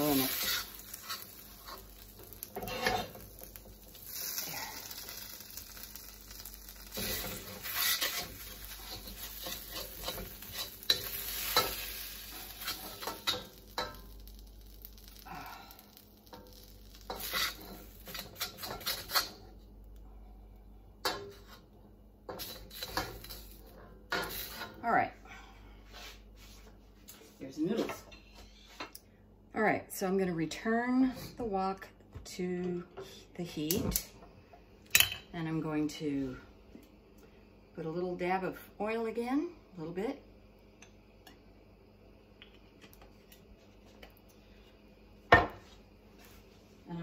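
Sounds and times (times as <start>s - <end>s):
metal spatula scraping wok: 0.0s - 3.2s, 6.9s - 14.0s, 16.3s - 19.4s, 22.3s - 24.8s
light sizzle from pan: 0.0s - 25.1s.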